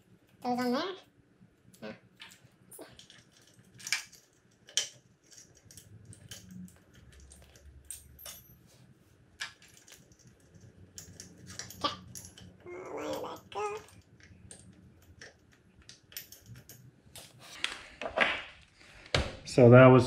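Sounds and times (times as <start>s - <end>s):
small metal parts clicking: 1.6s - 8.6s, 9.4s - 16.9s.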